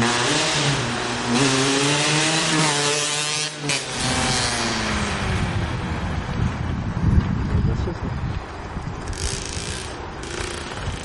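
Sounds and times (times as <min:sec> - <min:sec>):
two-stroke dirt bike revving: 0:00.0 - 0:05.3, 0:09.1 - 0:11.0.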